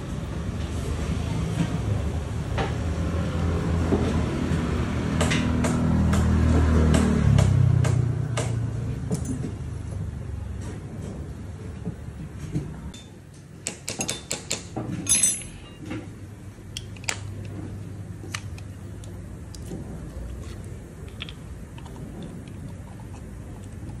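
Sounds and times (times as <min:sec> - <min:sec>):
metal tool clicks and clinks: 0:15.0 - 0:15.8.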